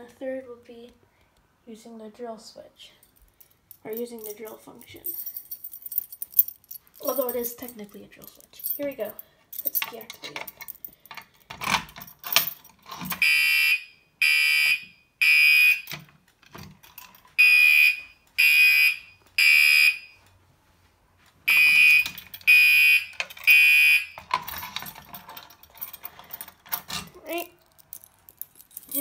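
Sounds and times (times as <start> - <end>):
keys jangling: 3.0 - 13.2, 22.0 - 22.5, 24.2 - 29.0
fire alarm horn blasts: 13.2 - 15.9, 17.4 - 20.2, 21.5 - 24.2.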